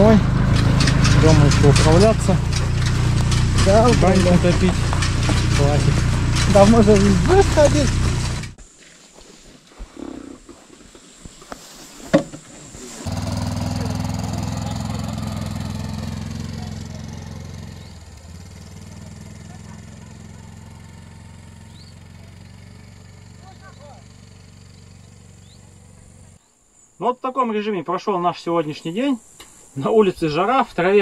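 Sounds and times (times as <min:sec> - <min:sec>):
quad bike engine droning: 0:00.0 - 0:08.6, 0:13.0 - 0:26.4.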